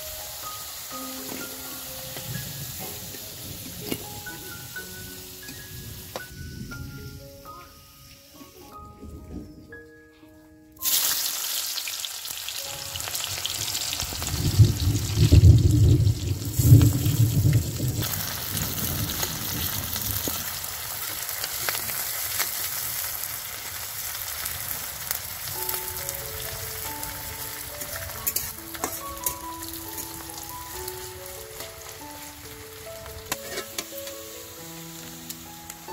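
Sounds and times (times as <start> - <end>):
onions sizzling in hot oil: 0.0 - 6.6, 10.8 - 35.9
light background music: 0.0 - 14.3, 25.6 - 35.9
metal spatula stirring: 27.8 - 30.2, 33.3 - 34.1.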